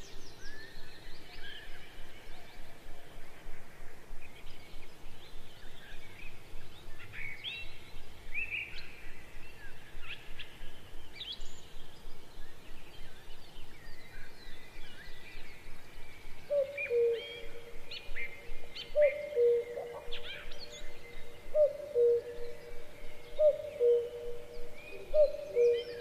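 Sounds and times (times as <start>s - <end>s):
birds chirping: 11.2s - 26.0s
low steady bird note: 14.7s - 26.0s.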